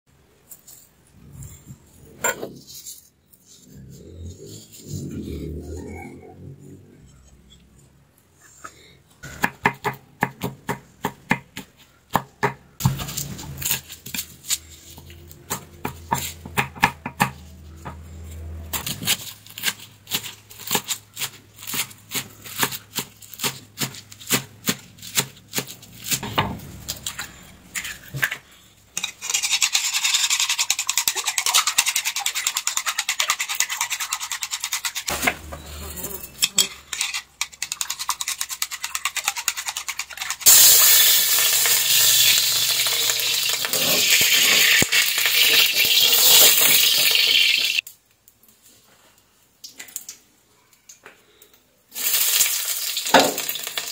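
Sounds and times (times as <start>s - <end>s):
eggs beaten in a bowl: 29.0s - 35.1s, 36.3s - 40.8s.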